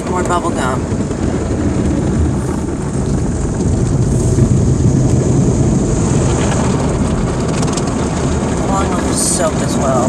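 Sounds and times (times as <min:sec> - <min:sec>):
car wash machinery spraying foam: 0:00.2 - 0:10.0.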